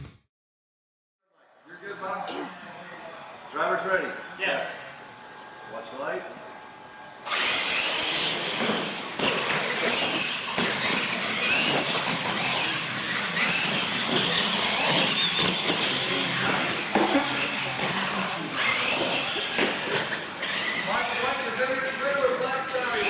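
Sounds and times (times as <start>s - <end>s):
toy truck electric motors whining: 7.2s - 23.0s
tyre noise on concrete: 8.2s - 20.9s.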